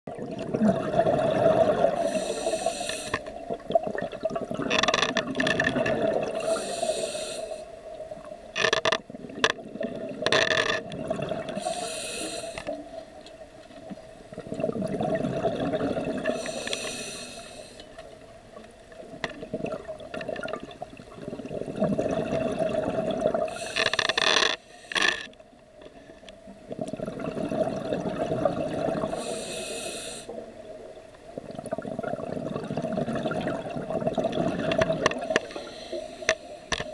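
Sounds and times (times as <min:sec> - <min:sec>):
exhaled bubbles rushing: 0:00.1 - 0:02.1, 0:03.4 - 0:06.4, 0:10.8 - 0:11.6, 0:14.3 - 0:16.4, 0:19.0 - 0:23.6, 0:26.7 - 0:29.2, 0:31.4 - 0:35.3
regulator inhale hiss: 0:02.0 - 0:03.3, 0:06.4 - 0:07.8, 0:11.6 - 0:12.8, 0:16.3 - 0:18.0, 0:23.5 - 0:25.3, 0:29.1 - 0:30.4, 0:35.2 - 0:36.9.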